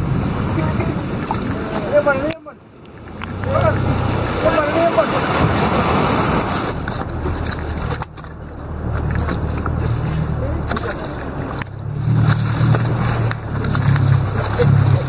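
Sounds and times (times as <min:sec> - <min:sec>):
water rushing along hull: 0:00.0 - 0:15.0
motorboat engine drone: 0:02.9 - 0:15.0.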